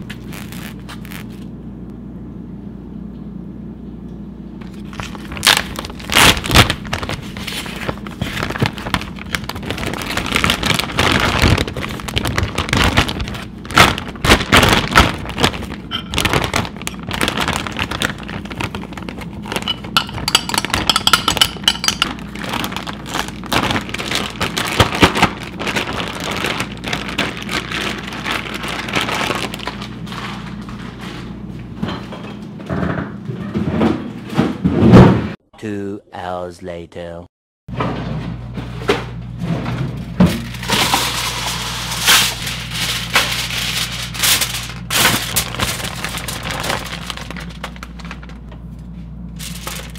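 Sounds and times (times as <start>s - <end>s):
plastic bag crinkling: 4.6s - 30.6s, 40.4s - 48.5s, 49.3s - 49.9s.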